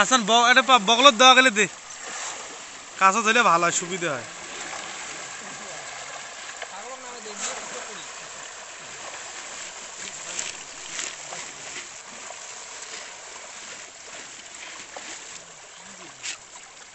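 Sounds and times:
fish thrashing and splashing: 0:04.2 - 0:16.9.

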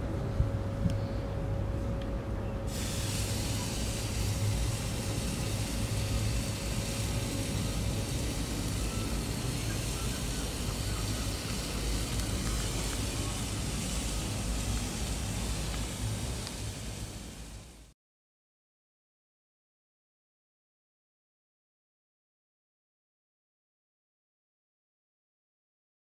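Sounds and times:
low hum: 0:00.0 - 0:17.9
meat sizzling on grill: 0:02.7 - 0:17.8.

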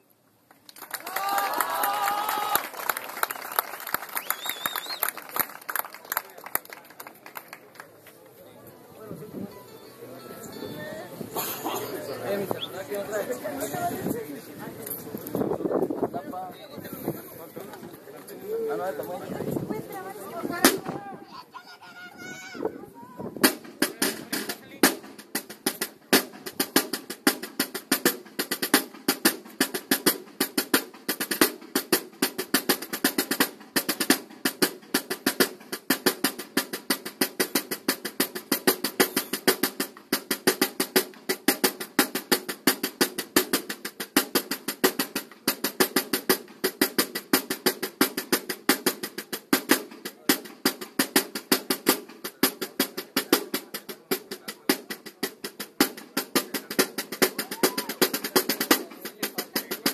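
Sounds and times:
marching drum line: 0:01.0 - 0:05.9, 0:18.4 - 0:59.9.

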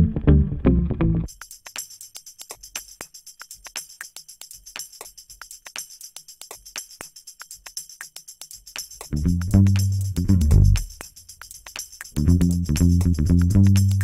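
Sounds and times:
loud low bass: 0:00.0 - 0:01.3, 0:09.1 - 0:10.8
instrumental music: 0:00.0 - 0:14.0
jingling percussion beat: 0:01.3 - 0:14.0.

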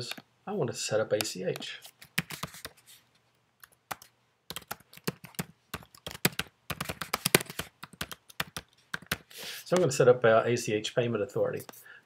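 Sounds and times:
keyboard typing: 0:01.2 - 0:02.8, 0:03.6 - 0:09.9.

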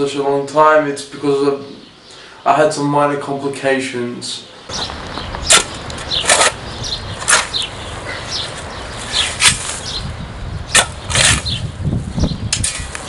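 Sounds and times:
scraping of earth and grass: 0:04.7 - 0:13.0
shovel chopping into hard ground: 0:05.4 - 0:06.6, 0:07.2 - 0:07.7, 0:09.1 - 0:09.9, 0:10.7 - 0:11.6, 0:12.5 - 0:13.0.

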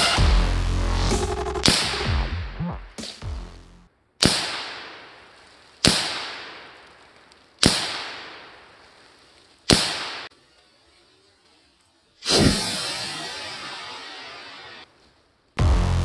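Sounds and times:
rifle shots echoing: 0:04.2 - 0:09.0, 0:09.6 - 0:10.3.

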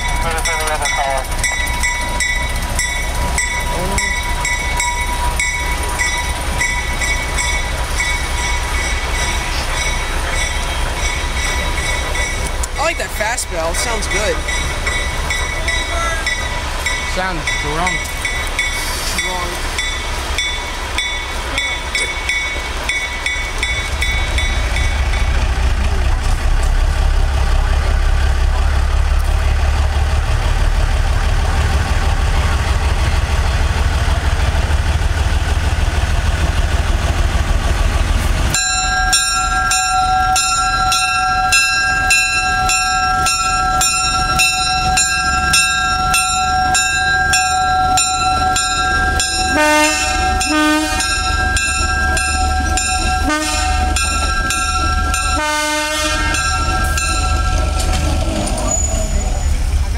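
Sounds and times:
locomotive bell ringing: 0:00.0 - 0:26.3, 0:38.5 - 0:59.9
diesel locomotive engine rumble: 0:00.0 - 0:59.9.

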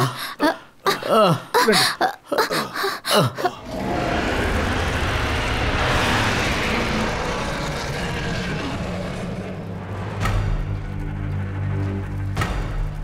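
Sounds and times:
dinosaur roaring: 0:03.5 - 0:10.6.

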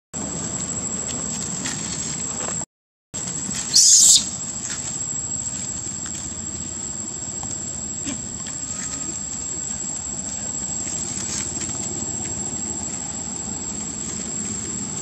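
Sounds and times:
high thin insect whine: 0:03.2 - 0:15.0
steady background noise: 0:03.2 - 0:15.0
loud high hiss: 0:03.5 - 0:04.6.

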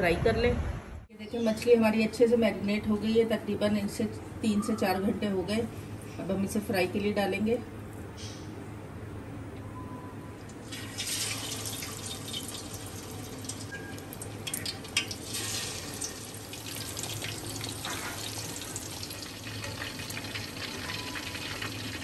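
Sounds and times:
fish deep-frying in hot oil: 0:10.6 - 0:22.0.

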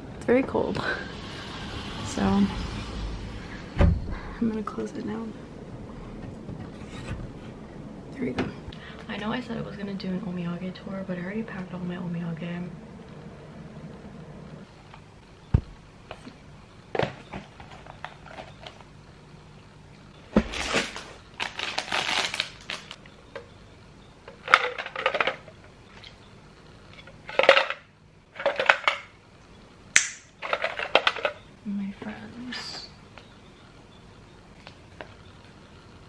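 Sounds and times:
packaging rustling and crinkling: 0:17.0 - 0:18.9, 0:20.4 - 0:23.1.

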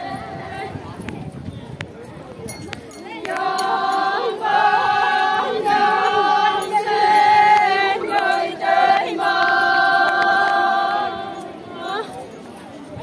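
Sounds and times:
women singing in chorus: 0:00.0 - 0:00.8, 0:03.2 - 0:12.2.

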